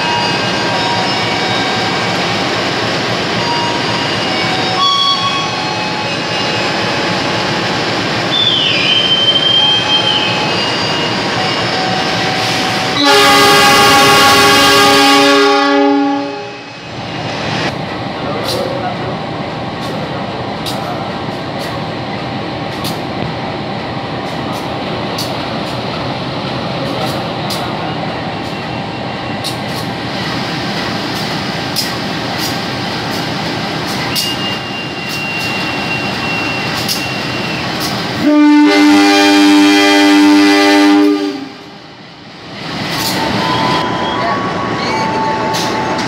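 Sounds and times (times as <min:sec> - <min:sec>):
locomotive horn blast: 0:12.4 - 0:16.7, 0:38.2 - 0:41.7.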